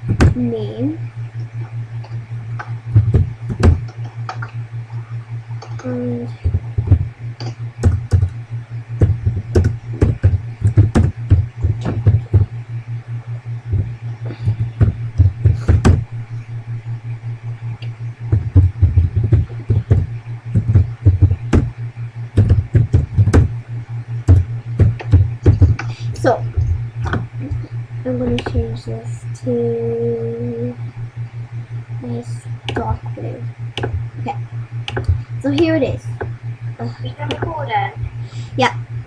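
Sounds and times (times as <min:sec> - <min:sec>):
steady low hum: 0:00.0 - 0:39.0
keyboard typing clicks: 0:34.8 - 0:35.7.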